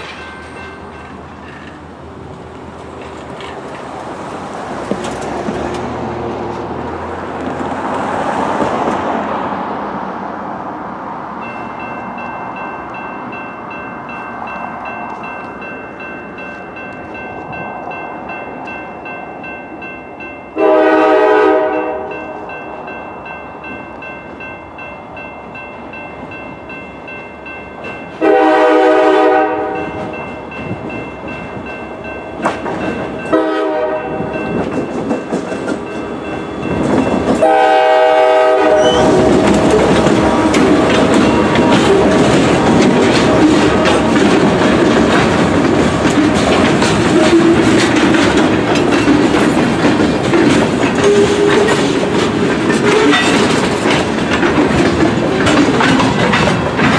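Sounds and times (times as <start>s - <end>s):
crossing warning bell ringing: 0.0s - 2.0s, 11.3s - 56.9s
locomotive air horn blasts: 20.6s - 22.3s, 28.2s - 30.0s, 33.3s - 34.2s, 37.4s - 39.2s.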